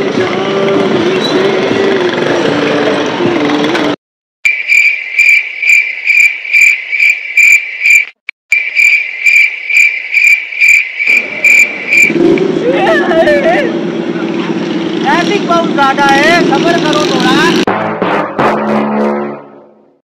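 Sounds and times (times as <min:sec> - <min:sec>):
cricket chirping: 0:04.5 - 0:12.1
motorcycle engine: 0:11.1 - 0:19.5.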